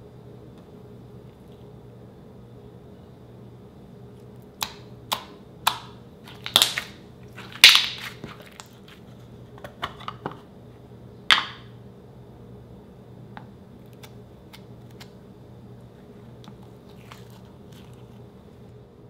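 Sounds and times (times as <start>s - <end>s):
slime squeezed popping and crackling: 6.3s - 8.2s.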